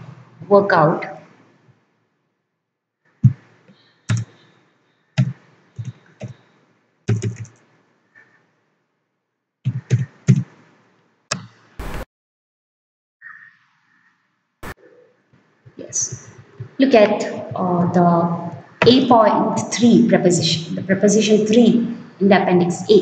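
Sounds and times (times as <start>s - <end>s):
keyboard keys clicking: 4.1s - 4.4s, 7.1s - 7.6s.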